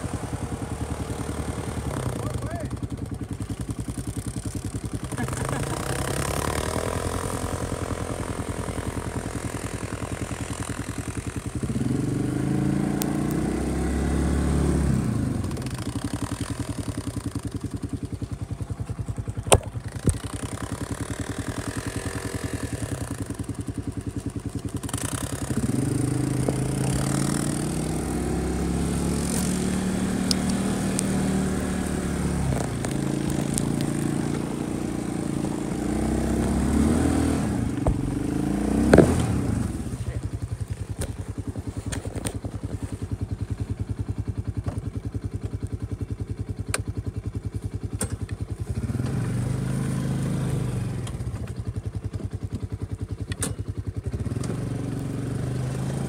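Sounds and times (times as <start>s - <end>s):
utility vehicle engine revving: 0.0s - 46.9s, 47.7s - 56.0s.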